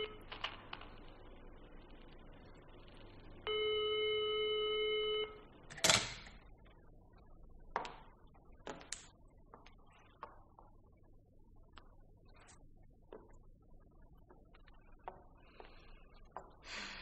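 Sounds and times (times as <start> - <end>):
telephone line tone: 0.0 - 0.3, 3.4 - 5.6.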